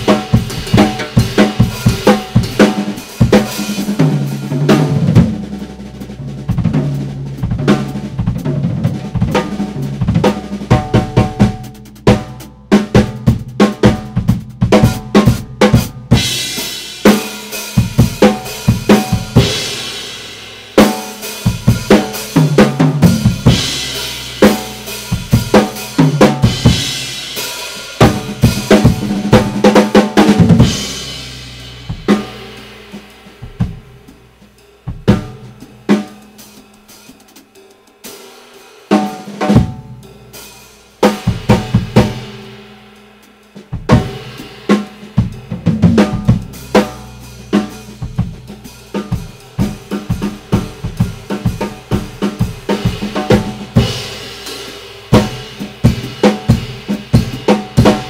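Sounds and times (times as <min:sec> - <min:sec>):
drums: 0:00.0 - 0:58.0
cymbal crashes: 0:16.2 - 0:29.4, 0:30.4 - 0:34.8.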